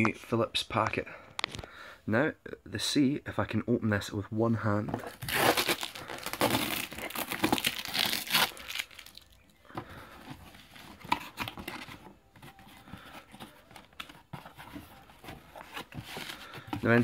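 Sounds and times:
cardboard rustling and scraping: 4.8 - 8.7, 9.7 - 17.0
packing tape ripping: 5.1 - 9.3.

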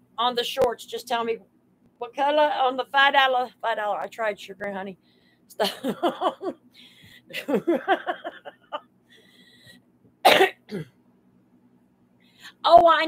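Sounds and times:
woman laughing: 5.6 - 6.6, 7.3 - 8.8
woman coughing: 10.2 - 11.0.

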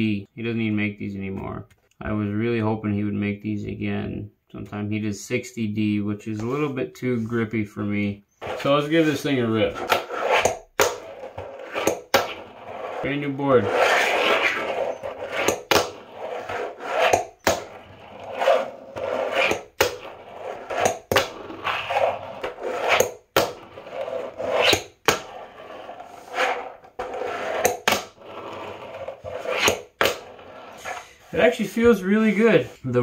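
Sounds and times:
skateboard wheels rolling on table: 8.4 - 32.5.

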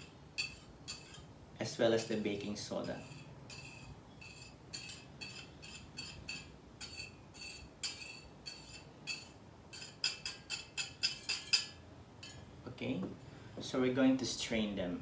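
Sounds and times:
whisk clinking on a plate: 0.0 - 1.3, 2.8 - 12.5.

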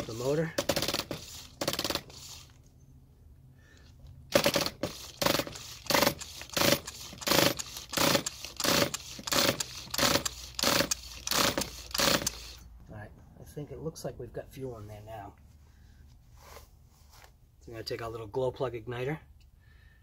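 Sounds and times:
pull-start cord whirring: 4.3 - 12.6.

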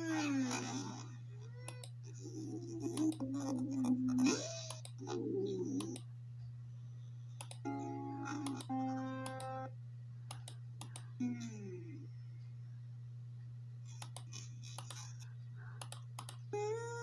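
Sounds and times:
low hum: 0.0 - 17.0
mouse clicks: 7.4 - 7.6, 10.3 - 11.1, 14.0 - 15.0, 15.8 - 16.4
short musical chord: 7.7 - 9.7.

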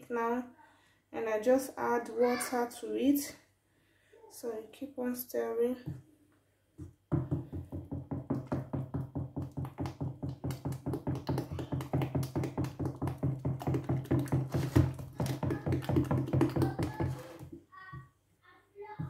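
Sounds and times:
stick beating batter in a pot: 7.1 - 17.6.

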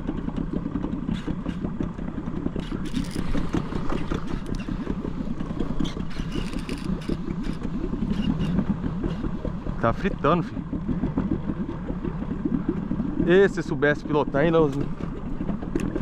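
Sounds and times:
boat motor throbbing: 0.0 - 16.0
clicks and clatter: 2.5 - 4.9, 5.8 - 9.2.

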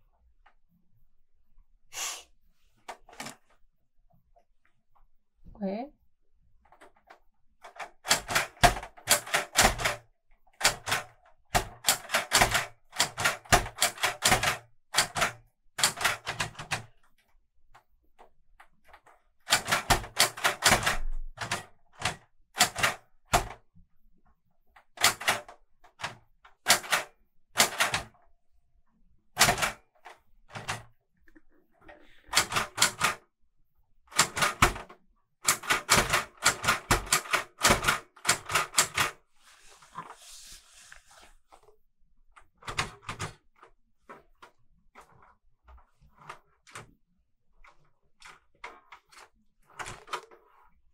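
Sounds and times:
typewriter keystrokes clacking: 7.7 - 10.0, 10.6 - 16.9, 19.4 - 23.6, 25.0 - 28.2, 29.4 - 30.9, 32.3 - 33.2, 34.1 - 39.2, 42.6 - 43.4.

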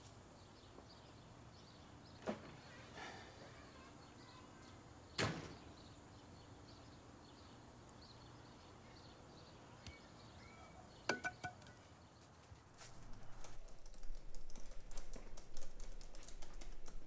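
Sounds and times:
faint chirps: 5.8 - 12.0.

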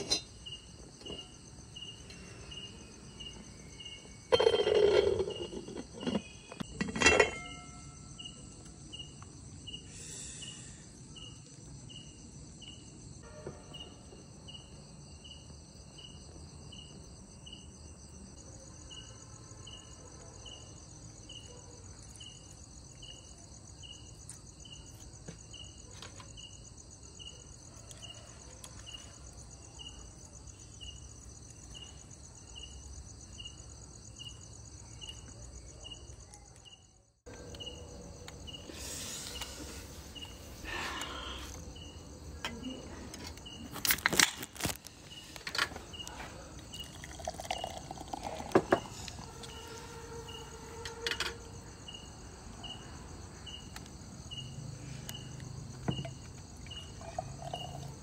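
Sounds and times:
insects trilling: 0.0 - 6.8, 7.7 - 58.0
sharp insect chirp: 8.0 - 12.9, 51.4 - 58.0.

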